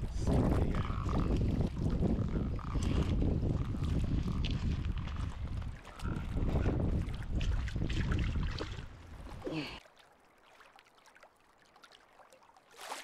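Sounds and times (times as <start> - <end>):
wind rumbling on microphone: 0.0 - 9.4
water sounds: 0.0 - 13.0.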